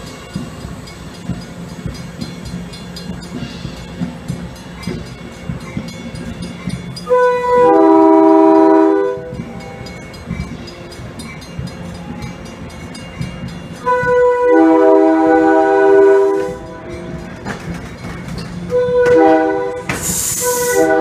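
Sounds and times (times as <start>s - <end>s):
train rumbling past: 0.0s - 21.0s
train horn blasts: 7.0s - 9.9s, 13.8s - 17.4s, 18.6s - 21.0s.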